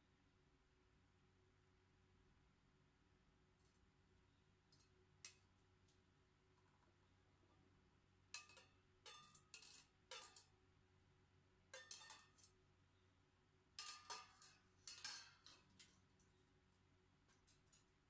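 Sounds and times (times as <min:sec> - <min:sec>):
dried food clinking in container: 0:08.4 - 0:10.6, 0:11.8 - 0:12.6, 0:13.8 - 0:18.0.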